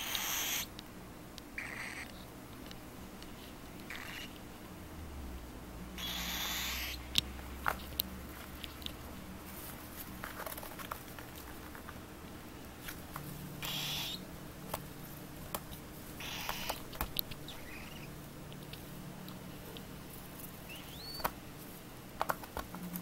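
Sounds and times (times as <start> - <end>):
small clicks and taps: 22.2 - 23.0.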